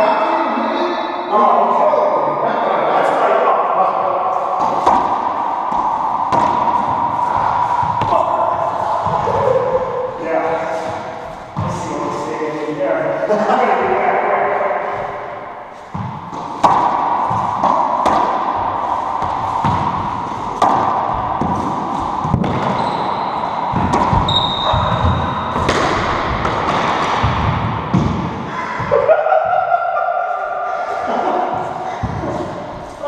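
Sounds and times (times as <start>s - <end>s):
racquetball hits echoing in court: 4.3s - 12.5s, 13.7s - 29.4s, 31.4s - 32.9s.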